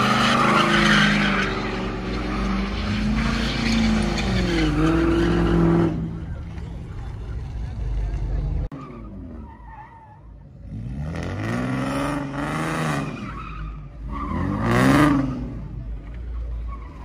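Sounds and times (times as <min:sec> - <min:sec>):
tyres screeching: 0:00.0 - 0:06.3.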